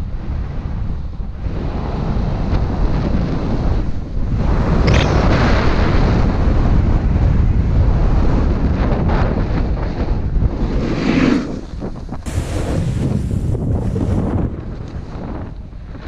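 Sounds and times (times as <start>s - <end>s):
wind buffeting microphone: 0.0s - 16.0s
snowboard edge scraping snow: 10.6s - 15.2s.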